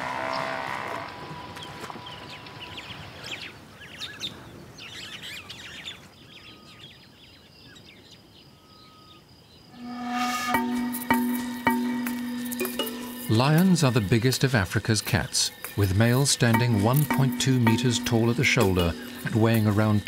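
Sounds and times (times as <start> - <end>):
birds chirping and calling: 0.0 - 20.0
faint insects: 0.1 - 20.0
thin whistled notes: 9.8 - 14.0
music: 9.8 - 20.0.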